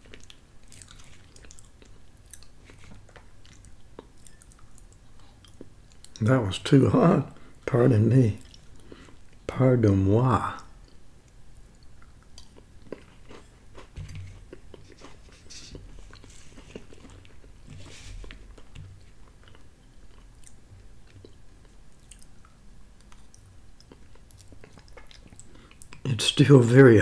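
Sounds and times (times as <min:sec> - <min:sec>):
person chewing food: 0:00.0 - 0:06.2, 0:08.4 - 0:09.4, 0:10.6 - 0:26.1
fork scooping in foil tin: 0:14.0 - 0:18.5.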